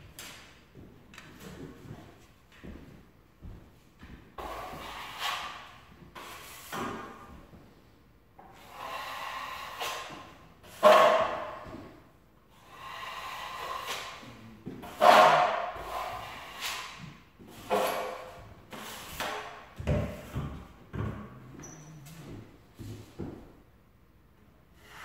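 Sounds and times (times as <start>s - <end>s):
blade scraping joint compound: 17.6s - 19.5s.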